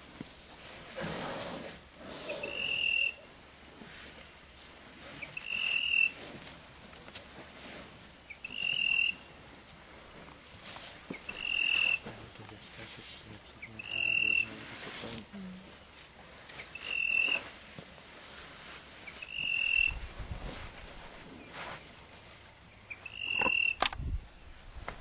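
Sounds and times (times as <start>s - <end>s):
wild animal calling: 2.1s - 3.3s, 8.4s - 9.2s, 11.2s - 12.1s, 16.7s - 17.5s, 19.2s - 20.0s, 23.0s - 23.9s.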